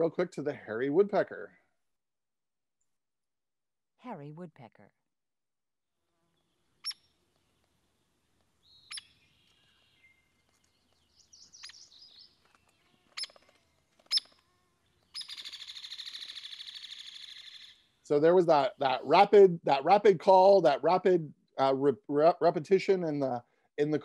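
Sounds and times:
woodpecker chatter: 6.4s - 17.9s
woodpecker calls: 6.7s - 7.6s, 8.5s - 18.0s
woodpecker metallic rattle: 8.6s - 9.5s, 13.1s - 14.4s, 15.0s - 17.8s.

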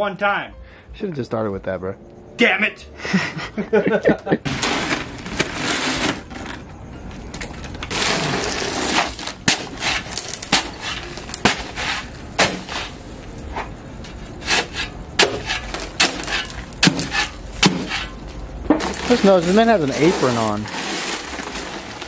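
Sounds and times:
shovel chopping into bag: 7.9s - 13.0s, 14.5s - 18.1s
pouring rush: 18.8s - 22.0s.

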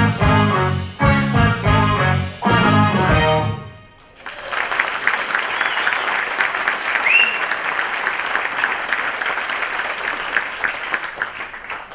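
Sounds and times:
audience applauding: 4.0s - 11.9s
rising whistle from crowd: 5.4s - 7.7s.

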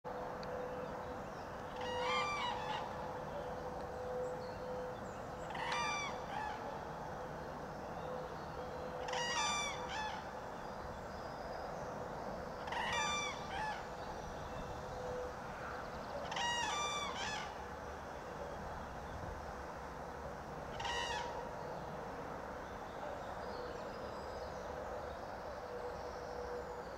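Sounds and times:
cranes calling: 1.6s - 6.8s, 8.8s - 10.5s, 12.6s - 17.7s, 20.7s - 21.5s.

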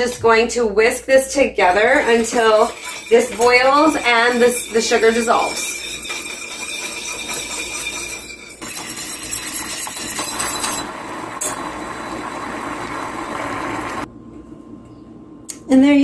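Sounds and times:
whisk scraping metal saucepan: 1.6s - 10.9s.

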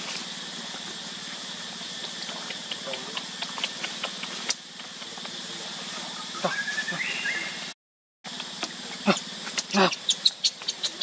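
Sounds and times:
steady background hum: 0.0s - 11.0s
baby monkey squealing: 9.0s - 11.0s.

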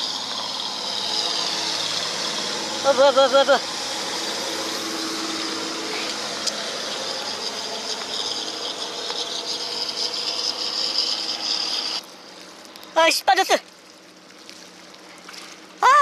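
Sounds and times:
fishing reel rasping and rattling: 0.0s - 12.0s.

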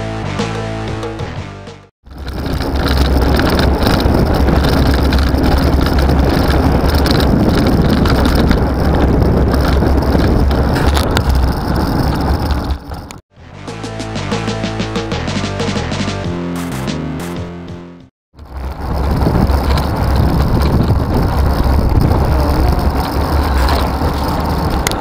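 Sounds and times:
wind buffeting microphone: 2.0s - 13.2s, 18.4s - 25.0s
road noise: 2.0s - 14.1s, 18.3s - 25.0s.

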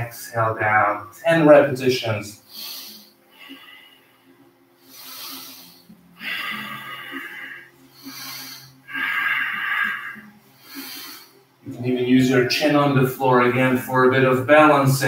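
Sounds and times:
man breathing hard: 2.4s - 11.5s.

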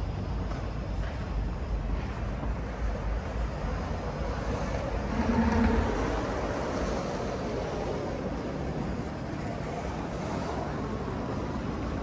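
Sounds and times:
steady traffic rumble: 0.0s - 12.0s
car passing by: 4.3s - 8.8s.

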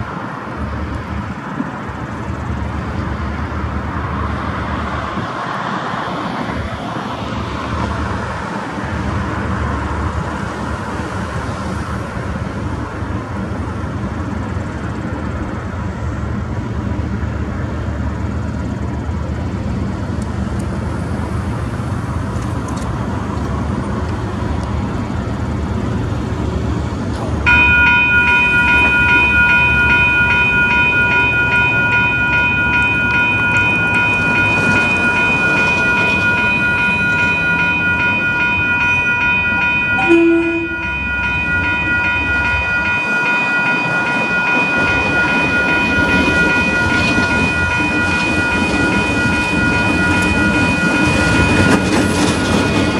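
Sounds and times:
diesel locomotive running: 0.0s - 52.9s
short lower tone: 27.5s - 46.4s
high multi-pitch warning sound: 27.5s - 52.9s.

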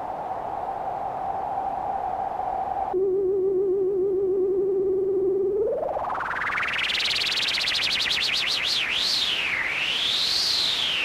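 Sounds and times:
synth tone with wobbling pitch: 3.0s - 9.4s.

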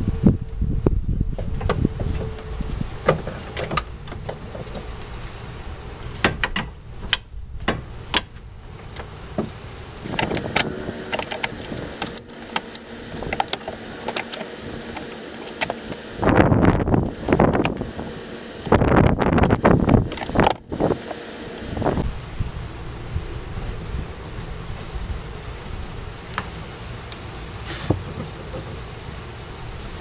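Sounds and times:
loud rush of noise: 9.9s - 25.2s.

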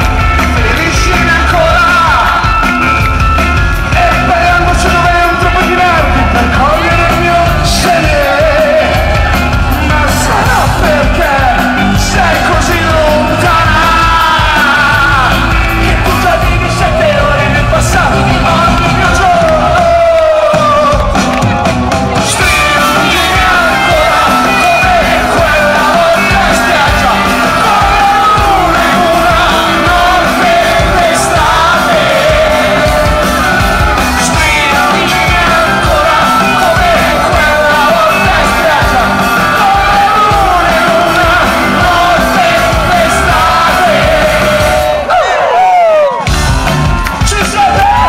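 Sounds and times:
man singing: 0.0s - 46.2s, 46.9s - 48.0s
rock band playing live: 0.0s - 48.0s.

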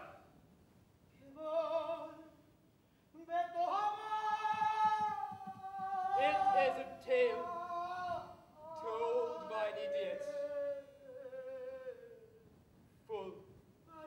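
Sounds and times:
person singing long notes: 3.6s - 12.4s.

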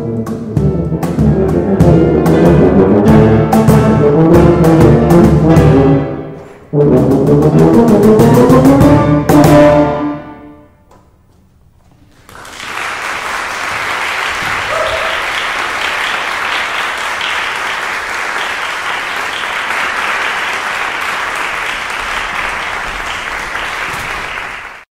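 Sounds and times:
tubas and piano chord: 0.0s - 10.8s
audience applause: 12.1s - 24.9s.

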